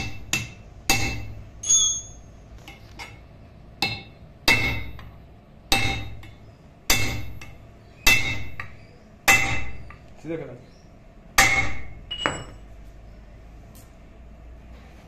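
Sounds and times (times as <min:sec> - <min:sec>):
hammer striking steel punch: 0:00.0 - 0:02.0, 0:03.8 - 0:10.0, 0:11.4 - 0:12.6.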